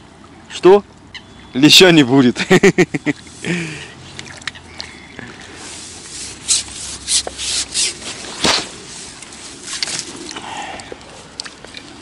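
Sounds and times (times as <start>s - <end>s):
rubbing and rustling: 5.5s - 10.3s
sharp scrapes: 5.5s - 10.3s.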